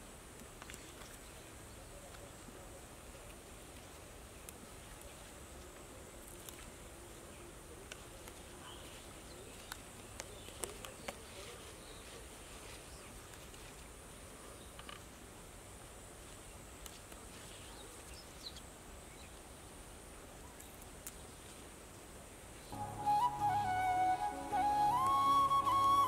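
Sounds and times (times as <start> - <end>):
leafy greens snapping when picked: 9.6 - 11.4.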